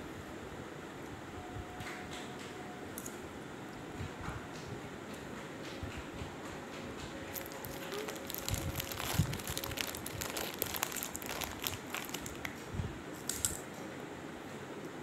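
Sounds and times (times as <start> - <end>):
snack packet crinkling: 7.3 - 12.6.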